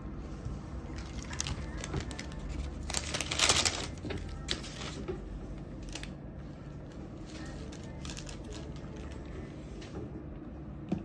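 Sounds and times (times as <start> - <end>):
paper rustling: 0.9 - 5.2.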